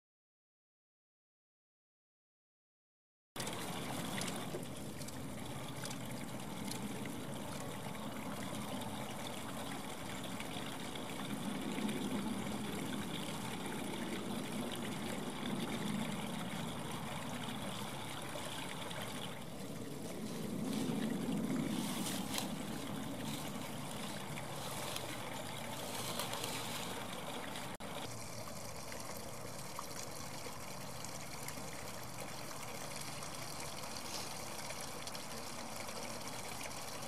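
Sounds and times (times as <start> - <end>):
steady rushing background noise: 19.7 - 28.1.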